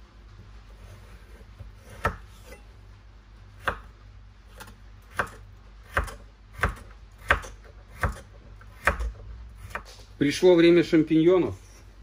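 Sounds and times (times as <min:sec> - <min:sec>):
knife chopping on cutting board: 0:01.0 - 0:02.6, 0:03.6 - 0:03.9, 0:04.5 - 0:10.0.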